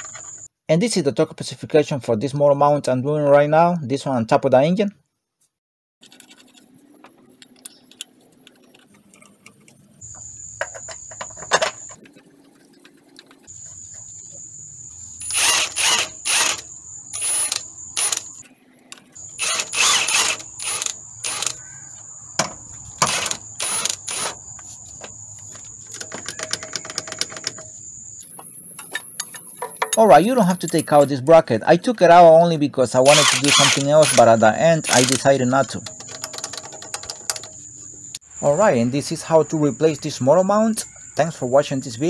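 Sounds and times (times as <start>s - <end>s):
ratchet wrench clicking: 15.2s - 18.4s, 19.4s - 21.6s, 33.1s - 37.5s.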